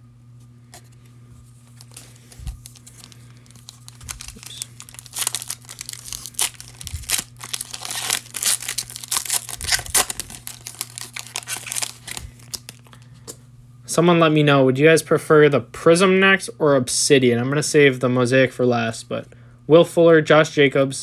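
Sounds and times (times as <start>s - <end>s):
foil wrapper tearing and crinkling: 1.7s - 13.0s.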